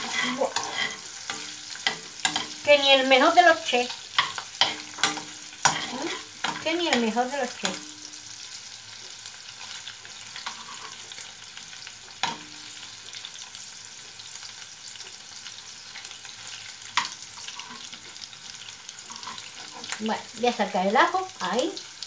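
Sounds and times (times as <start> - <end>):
prawns sizzling in hot oil: 0.0 - 22.0
spoon clicking against pan: 4.2 - 7.0.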